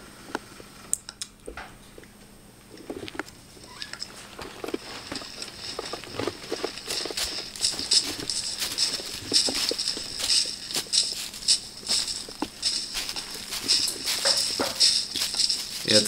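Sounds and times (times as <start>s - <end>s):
footsteps on dry leaves: 4.0s - 16.0s.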